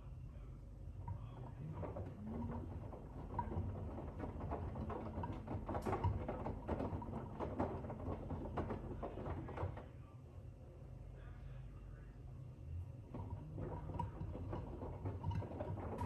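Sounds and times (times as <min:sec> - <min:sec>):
steady low hum: 0:00.0 - 0:16.0
washing machine drum turning: 0:01.0 - 0:09.8, 0:13.1 - 0:16.0
laundry knocking and water sloshing: 0:01.4 - 0:09.8, 0:13.1 - 0:16.0.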